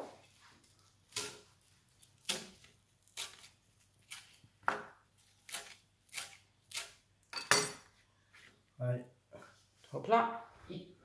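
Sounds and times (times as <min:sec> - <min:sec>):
knife chopping on cutting board: 0:02.1 - 0:03.5.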